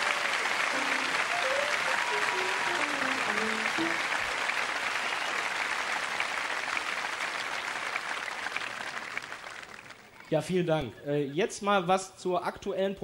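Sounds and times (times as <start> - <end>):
audience applauding: 0.0 - 10.2
piano notes: 0.7 - 4.4.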